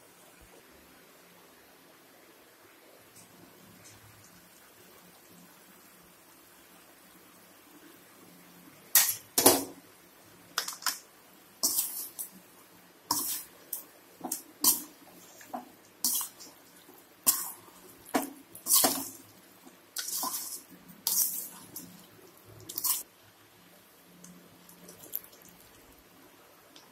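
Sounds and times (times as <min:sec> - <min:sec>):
ladle scraping metal pot: 0:13.1 - 0:16.6, 0:17.2 - 0:19.2, 0:20.0 - 0:22.0.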